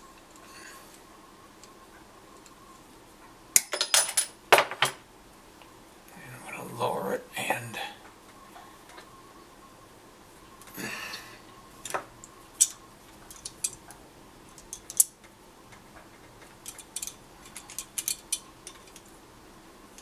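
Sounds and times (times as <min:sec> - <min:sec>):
pliers clicking on metal wire: 0:11.8 - 0:13.9, 0:14.5 - 0:19.1.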